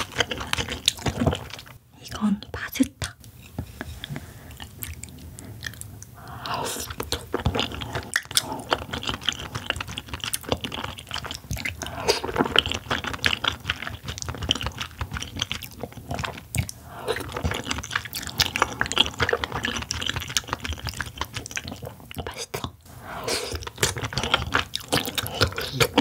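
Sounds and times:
wet chewing: 0:00.0 - 0:01.8, 0:04.0 - 0:26.0.

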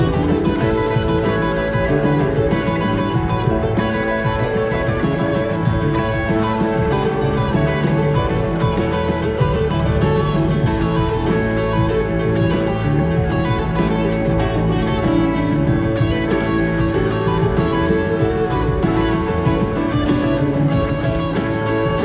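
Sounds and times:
electric guitar: 0:00.0 - 0:22.0
live rock band playing: 0:00.0 - 0:22.0.

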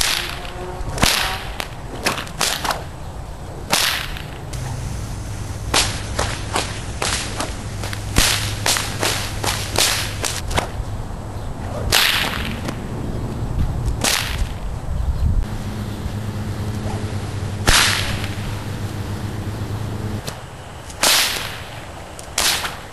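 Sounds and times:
whip swish: 0:00.0 - 0:02.9, 0:03.7 - 0:04.9, 0:05.7 - 0:10.8, 0:11.9 - 0:12.8, 0:13.9 - 0:14.6, 0:16.7 - 0:18.5, 0:21.0 - 0:22.9
whip cracking: 0:00.0 - 0:03.0, 0:03.7 - 0:10.8, 0:11.9 - 0:12.8, 0:13.9 - 0:14.6, 0:16.7 - 0:18.5, 0:20.2 - 0:22.9.

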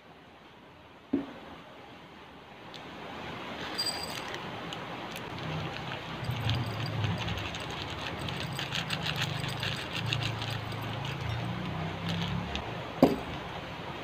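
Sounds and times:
seeds pouring into a bowl: 0:05.4 - 0:12.5.

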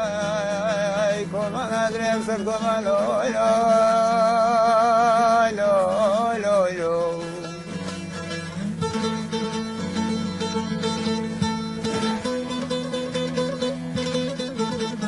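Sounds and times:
man singing with heavy vibrato: 0:00.0 - 0:08.2.

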